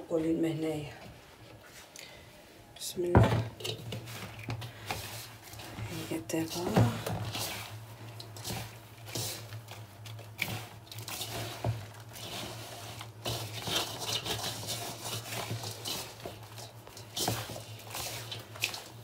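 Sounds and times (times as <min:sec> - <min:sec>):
hands rubbing gritty dough: 0:03.9 - 0:19.0.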